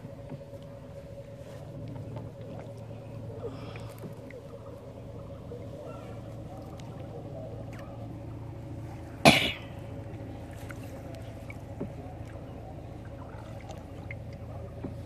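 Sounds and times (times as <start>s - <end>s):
person coughing: 9.3s - 9.7s.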